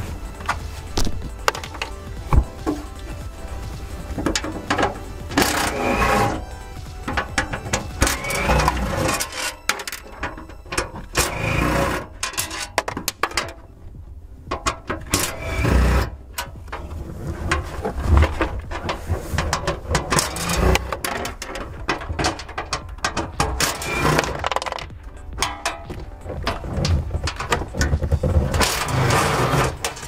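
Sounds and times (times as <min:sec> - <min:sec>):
power ratchet running: 0:03.0 - 0:09.4, 0:15.2 - 0:16.1.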